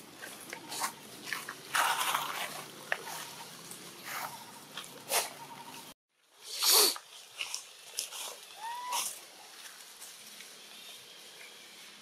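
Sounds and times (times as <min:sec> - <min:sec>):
macaques calling: 0:08.5 - 0:09.2.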